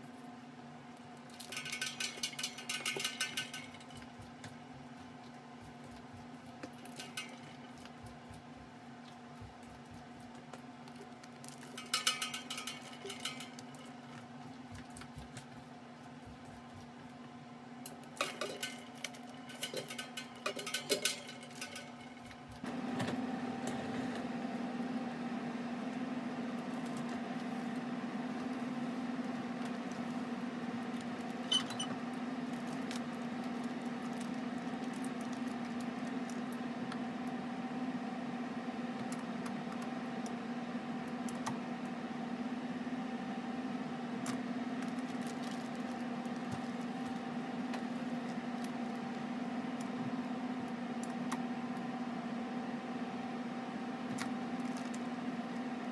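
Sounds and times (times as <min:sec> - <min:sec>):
fan-like hum: 0:00.0 - 0:55.9
steady low hum: 0:00.0 - 0:55.9
plastic bags crinkling: 0:44.8 - 0:47.2.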